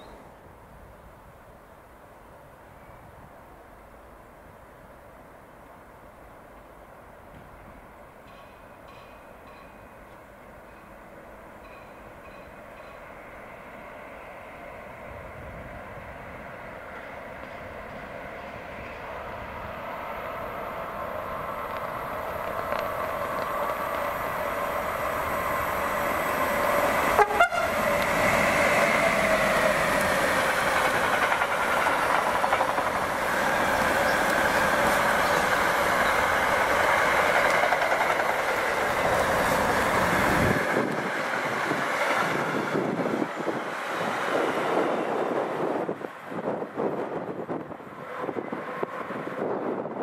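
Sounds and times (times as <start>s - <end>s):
electric locomotive passing: 0.0s - 50.0s
rolling clatter of train wagons: 6.5s - 13.3s, 21.6s - 50.0s.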